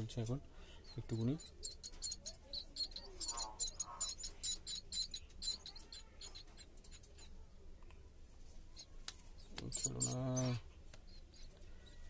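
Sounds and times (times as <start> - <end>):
nestlings begging calls: 0.8 - 7.3, 9.4 - 11.5.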